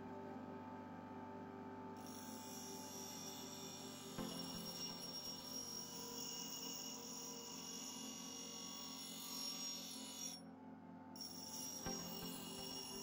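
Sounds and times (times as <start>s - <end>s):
bench grinder whining: 2.0s - 10.4s, 11.2s - 13.0s
steel ringing on grinding wheel: 2.0s - 10.4s, 11.2s - 13.0s.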